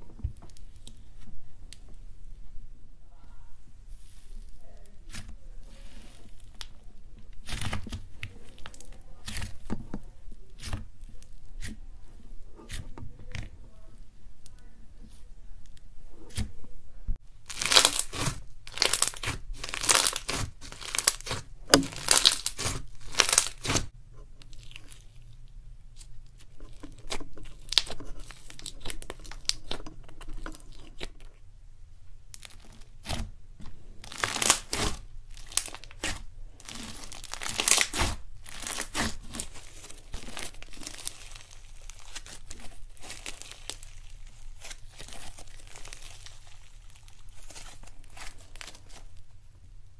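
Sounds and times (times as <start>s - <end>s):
slime crackling and tearing: 3.9s - 11.9s, 17.3s - 31.5s, 32.2s - 49.9s.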